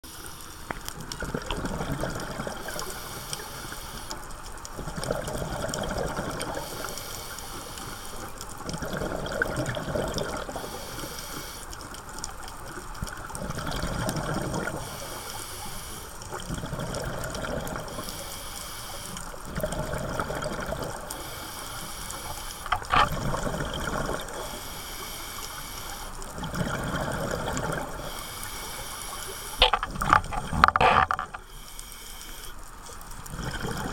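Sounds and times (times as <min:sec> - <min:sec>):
exhaled bubbles rushing: 0:01.0 - 0:02.8, 0:04.8 - 0:06.7, 0:08.6 - 0:10.6, 0:13.3 - 0:14.8, 0:16.4 - 0:17.9, 0:19.5 - 0:21.1, 0:22.7 - 0:24.6, 0:26.3 - 0:28.1, 0:33.2 - 0:33.9
diver breathing through regulator: 0:02.6 - 0:04.2, 0:06.5 - 0:08.3, 0:10.5 - 0:11.7, 0:14.6 - 0:32.6.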